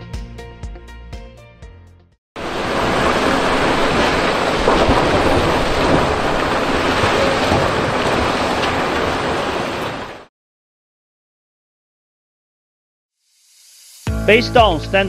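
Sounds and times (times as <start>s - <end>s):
heavy rain with thunder: 2.4s - 10.3s.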